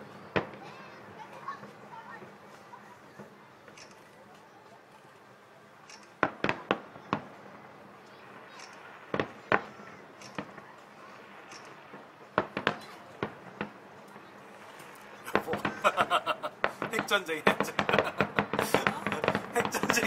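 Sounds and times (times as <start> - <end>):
fireworks bangs: 0.0 - 20.0.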